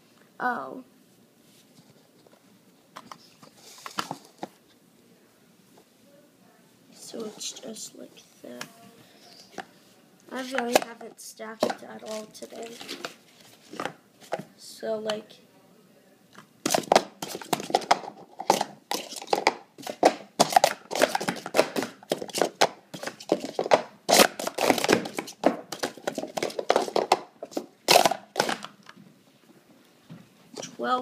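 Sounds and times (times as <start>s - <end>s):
plastic cups clattering: 10.4s - 14.4s, 16.6s - 29.0s.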